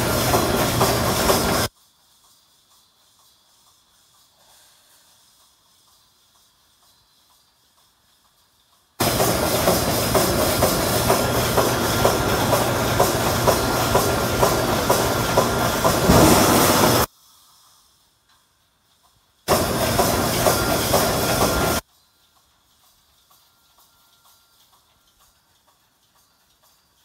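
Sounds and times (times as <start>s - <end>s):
welding machine clacking: 0.0s - 1.7s, 5.3s - 17.1s, 18.4s - 27.0s
compressed air hiss: 0.0s - 18.5s.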